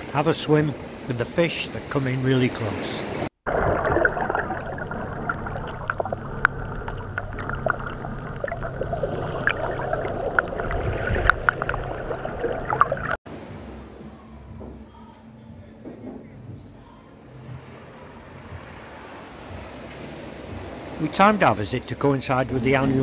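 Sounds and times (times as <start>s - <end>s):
muffled underwater wash: 0.0s - 13.2s
small underwater clicks and crackles: 3.8s - 13.2s.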